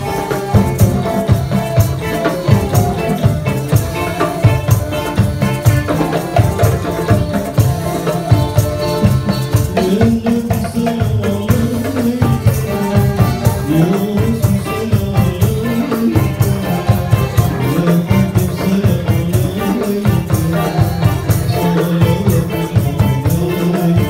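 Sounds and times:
hand drum rhythm: 0.0 - 24.0
jingling tambourines: 0.0 - 24.0
lute and flute melody: 0.0 - 24.0
man singing into a microphone: 0.0 - 24.0.

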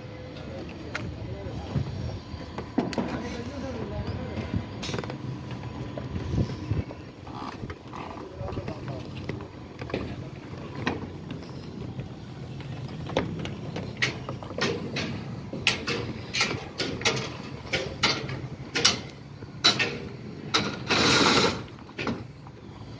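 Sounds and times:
steel bar clanking on rebar: 14.6 - 21.7.

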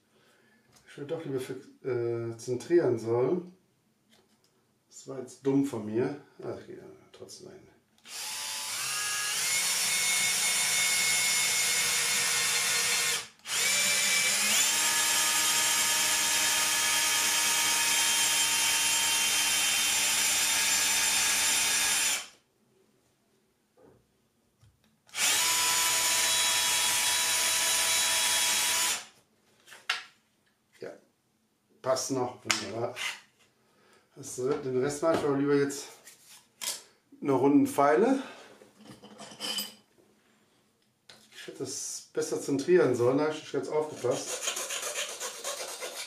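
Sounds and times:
drill whining through wood: 8.0 - 22.4, 25.1 - 29.2.

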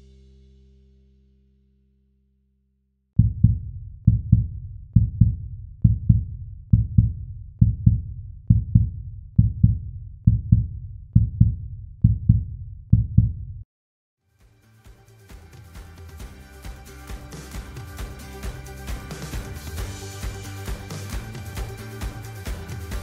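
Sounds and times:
heartbeat thumps: 3.2 - 13.6.

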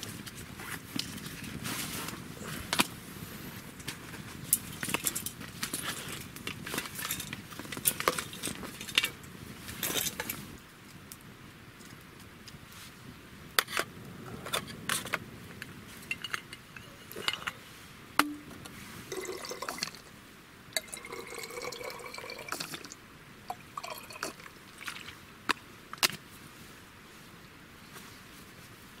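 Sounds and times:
liquid pouring into bottle: 19.1 - 20.0, 20.8 - 24.9.

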